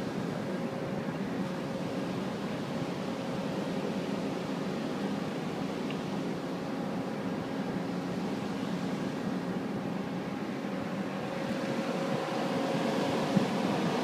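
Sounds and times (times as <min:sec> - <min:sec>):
ship engines droning: 0:00.0 - 0:14.0.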